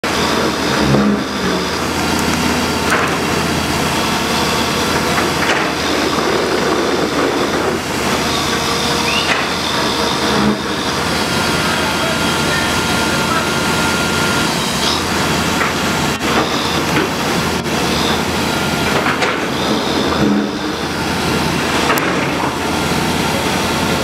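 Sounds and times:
loud engine noise: 0:00.0 - 0:24.0.

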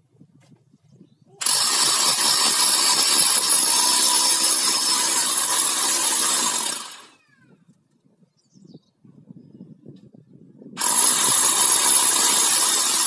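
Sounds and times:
drill motor winding down: 0:01.4 - 0:07.2, 0:10.8 - 0:13.0
rotary hammer drill hammering wall: 0:01.4 - 0:07.3, 0:10.8 - 0:13.0.

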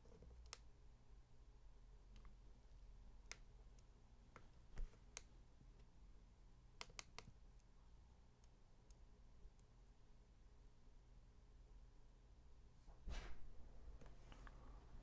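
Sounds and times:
soft thump: 0:13.1 - 0:13.5.

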